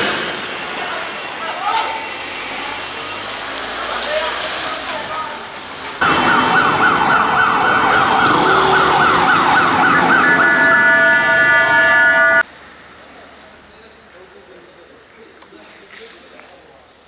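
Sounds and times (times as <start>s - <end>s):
emergency vehicle siren: 6.0s - 12.4s.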